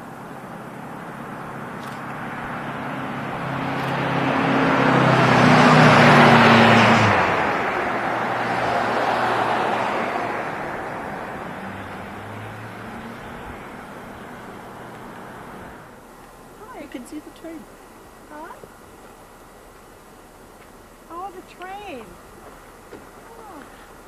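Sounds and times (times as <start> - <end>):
car passing by: 0.7 - 16.0.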